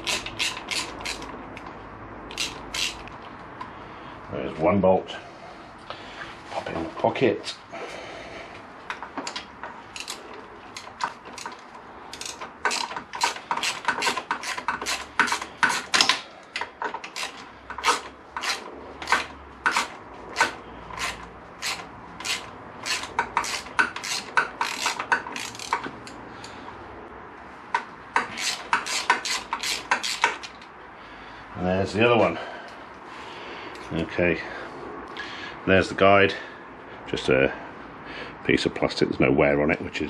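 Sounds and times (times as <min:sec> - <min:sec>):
ratchet clicking: 0:00.0 - 0:01.6, 0:02.3 - 0:03.2, 0:09.2 - 0:26.6, 0:27.7 - 0:30.7.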